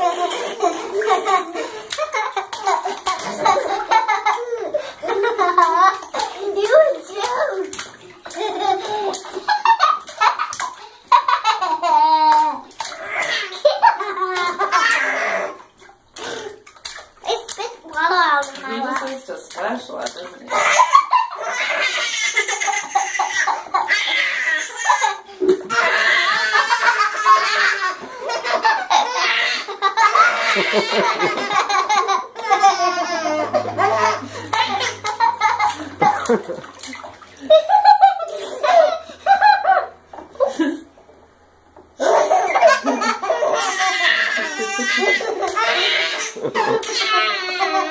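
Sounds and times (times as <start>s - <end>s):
children laughing and squealing: 0.0s - 15.7s, 20.5s - 40.8s, 42.0s - 47.9s
water splashing: 0.0s - 41.3s
young boy laughing: 25.8s - 36.8s, 42.0s - 47.9s.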